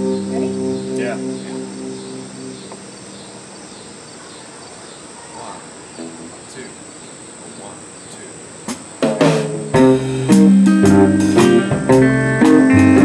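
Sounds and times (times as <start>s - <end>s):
loud guitar chords: 0.0s - 3.2s, 6.0s - 6.5s, 9.1s - 13.0s
crickets chirping: 0.0s - 12.6s.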